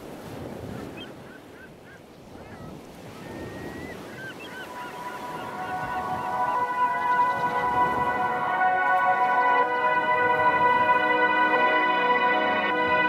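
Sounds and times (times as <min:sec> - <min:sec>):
surf washing: 0:00.0 - 0:13.0
music with long held tones: 0:04.6 - 0:13.0.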